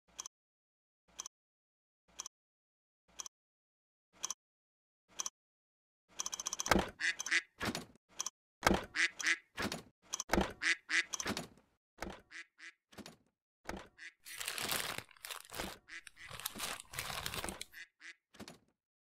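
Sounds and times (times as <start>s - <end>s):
rubber duck quacks: 6.9s - 7.6s, 8.8s - 9.5s, 10.5s - 11.2s, 12.2s - 12.8s, 14.0s - 14.3s, 15.6s - 16.5s, 17.7s - 18.2s
plastic bag crinkling: 14.2s - 17.8s.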